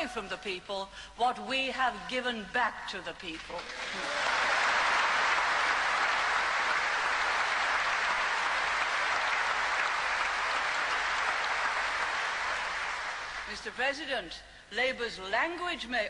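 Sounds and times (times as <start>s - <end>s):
audience applauding: 3.6s - 13.5s.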